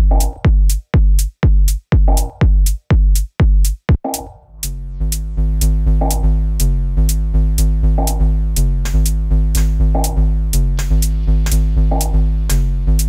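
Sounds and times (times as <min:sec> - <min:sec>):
steady kick drum: 0:00.0 - 0:13.0
pulsing synth bassline: 0:04.5 - 0:13.0.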